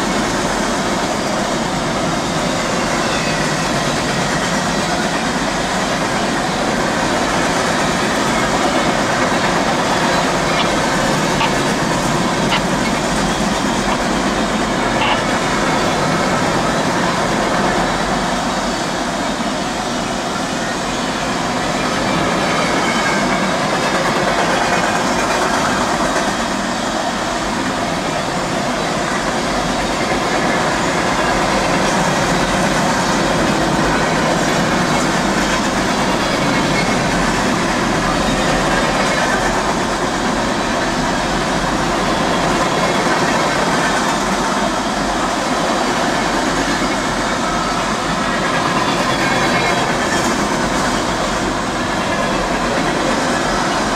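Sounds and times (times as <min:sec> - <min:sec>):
train wheels on rails: 0:00.0 - 0:53.9.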